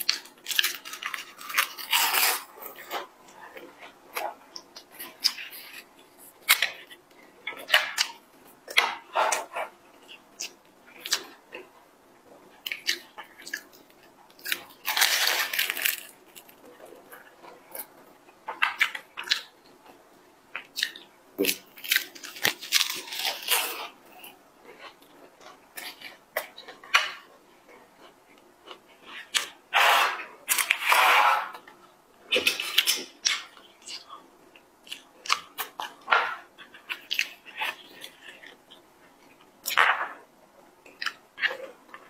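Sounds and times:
crisp pastry bites and chewing: 12.6 - 17.9, 20.5 - 27.3.

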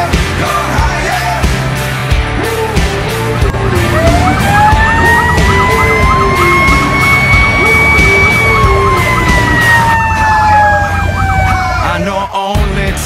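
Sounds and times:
high wailing siren: 3.4 - 12.1
rapidly cycling siren: 3.6 - 12.0.

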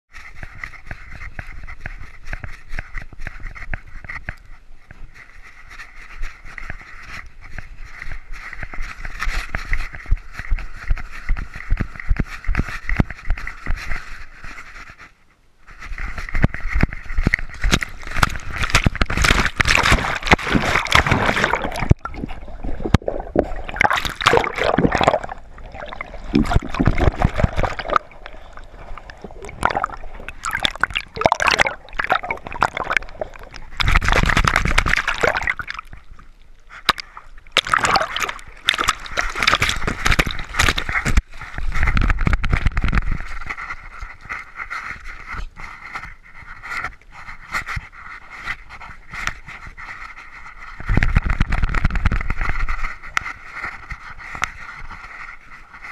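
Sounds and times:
water splashing and sloshing: 15.7 - 46.9.

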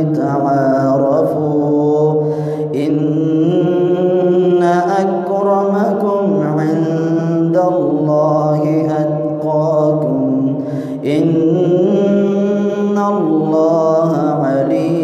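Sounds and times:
man chanting melodic recitation: 0.0 - 15.0
short breath: 2.2 - 2.8, 10.6 - 11.1.

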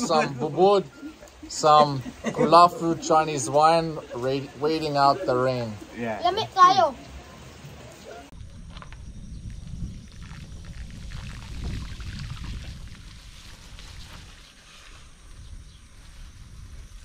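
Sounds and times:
bicycle tyres on muddy road: 7.7 - 17.0
wind rumble on microphone: 8.3 - 17.0.

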